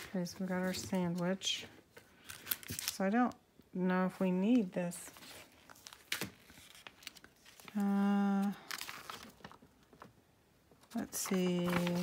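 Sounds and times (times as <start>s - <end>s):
paper rustling and crinkling: 0.0s - 3.1s, 5.0s - 10.1s, 10.8s - 12.0s.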